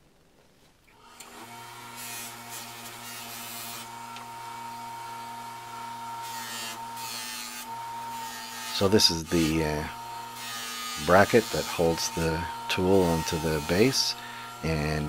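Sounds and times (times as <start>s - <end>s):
grinder motor humming and whining: 1.0s - 15.0s
metal grinding against disc: 6.2s - 15.0s.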